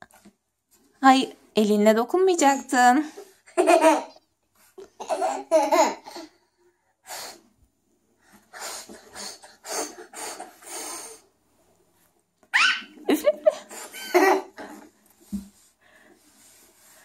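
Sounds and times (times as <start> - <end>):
breathy blowing puffs: 7.0 - 7.6, 8.2 - 11.4
boy giggling: 12.6 - 14.6.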